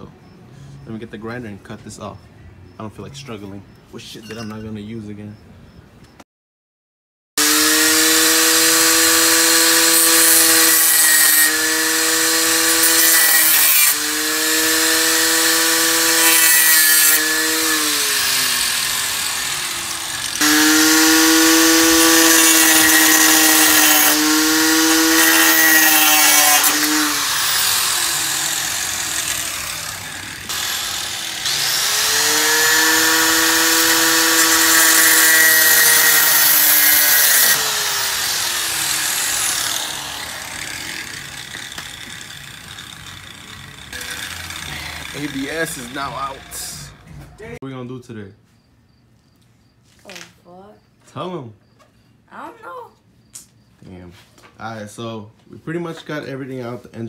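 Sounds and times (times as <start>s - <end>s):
angle grinder cutting steel: 7.4s - 47.5s.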